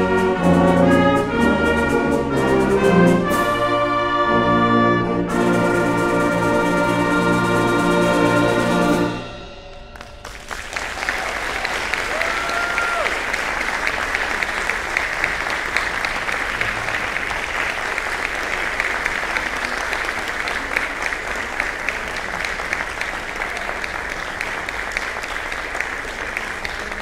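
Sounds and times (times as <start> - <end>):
audience applauding: 9.7 - 27.0.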